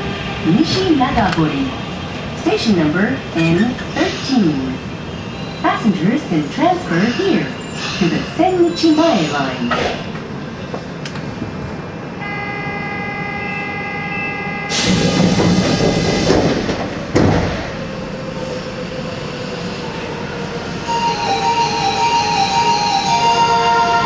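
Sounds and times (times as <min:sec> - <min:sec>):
train doors closing with thump: 0:14.7 - 0:18.1.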